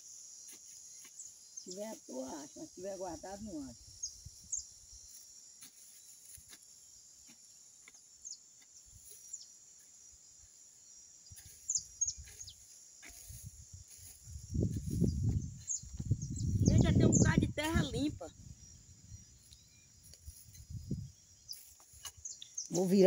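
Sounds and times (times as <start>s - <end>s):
high-pitched insect drone: 0.0s - 23.0s
bird chirps: 11.3s - 12.7s, 14.9s - 23.0s.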